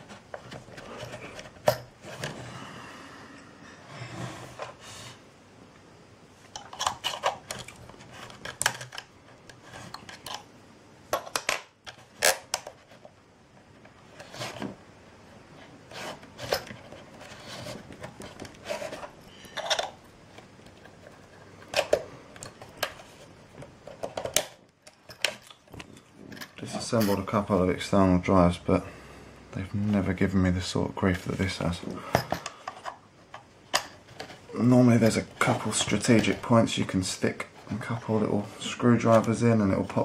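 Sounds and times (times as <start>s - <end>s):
tools scraping plastic case: 15.9s - 20.0s.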